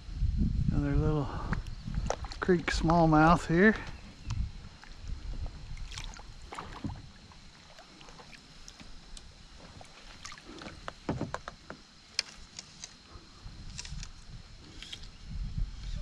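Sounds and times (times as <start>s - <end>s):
paddle splashing in water: 5.7s - 9.0s, 9.6s - 11.6s.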